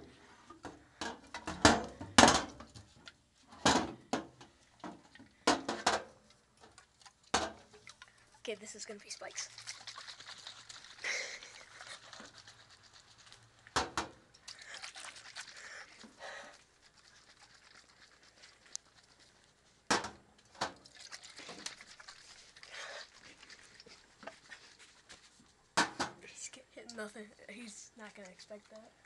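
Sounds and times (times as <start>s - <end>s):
rustling: 21.0s - 25.7s.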